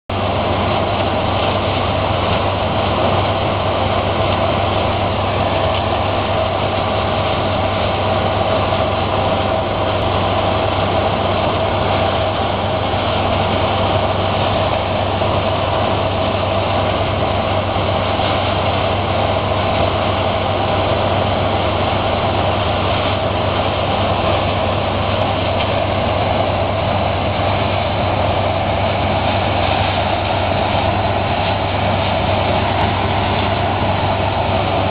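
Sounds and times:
combine harvester droning: 0.1s - 34.9s.

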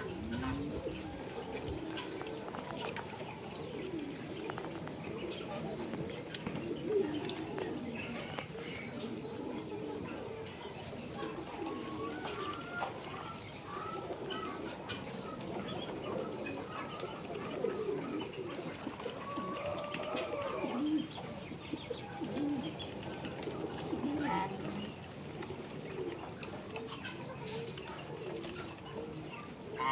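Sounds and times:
ducks murmuring: 0.0s - 29.9s.

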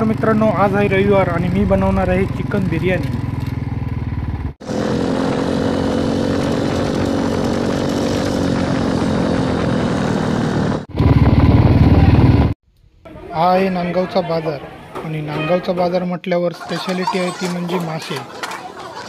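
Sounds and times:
motorcycle engine running: 0.0s - 12.6s.

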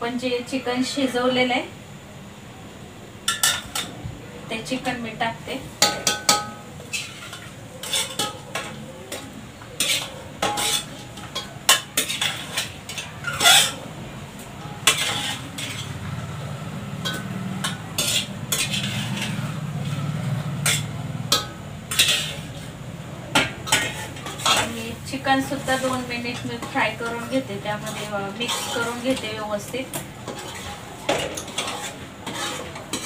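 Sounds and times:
sizzling: 0.0s - 33.0s
metal ladle clinking on pots: 3.3s - 4.0s, 5.8s - 13.8s, 14.6s - 16.0s, 16.9s - 22.7s, 23.3s - 24.8s, 25.5s - 33.0s.

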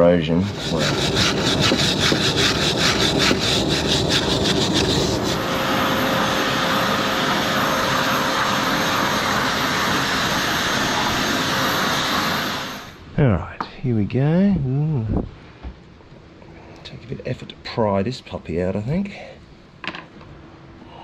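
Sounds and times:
wire brush scrubbing metal: 0.0s - 5.5s
electric air tool motor whining: 0.5s - 13.0s.

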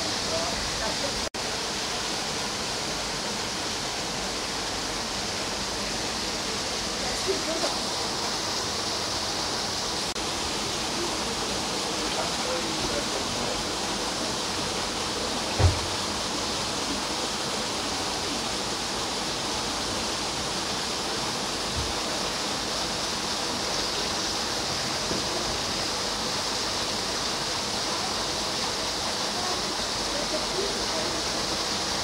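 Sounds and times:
running water rushing: 0.0s - 32.0s
dull low thump: 15.6s - 16.0s.

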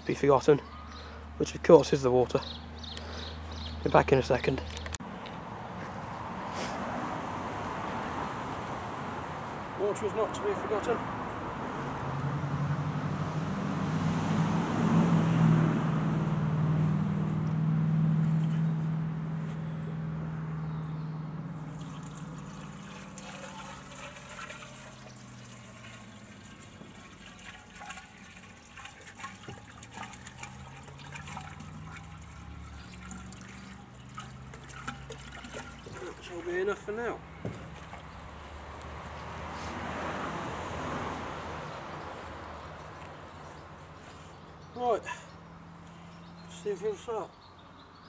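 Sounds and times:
water splashes and drips: 21.6s - 36.7s, 37.5s - 38.4s
water pouring from plastic can: 21.7s - 36.4s.

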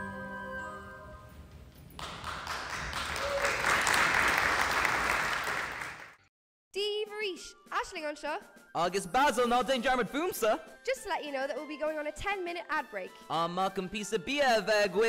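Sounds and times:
audience applauding: 2.0s - 6.2s.

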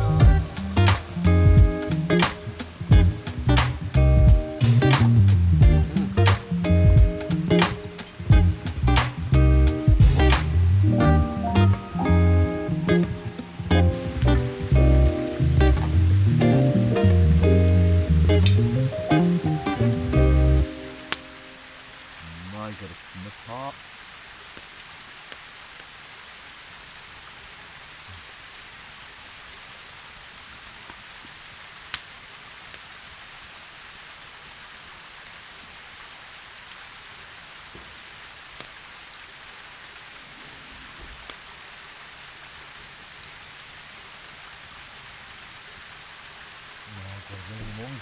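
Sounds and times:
steady fire hiss: 0.0s - 48.0s
wood fire crackling: 0.0s - 48.0s.

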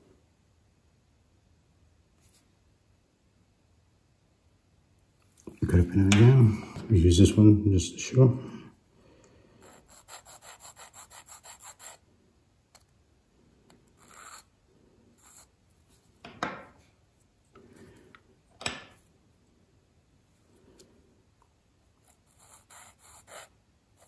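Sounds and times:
needle file rasping on metal: 9.6s - 12.0s, 14.0s - 14.5s, 22.0s - 23.6s.

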